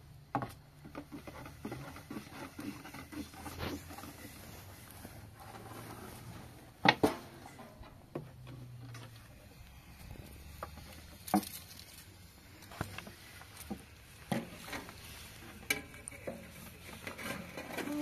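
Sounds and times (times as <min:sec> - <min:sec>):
faint steady background noise: 0:00.0 - 0:18.0.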